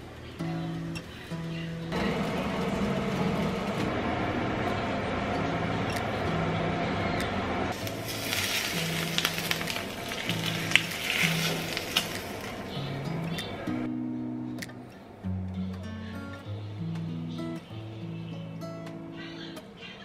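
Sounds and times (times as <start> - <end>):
hot oil sizzling and popping: 7.7 - 12.8.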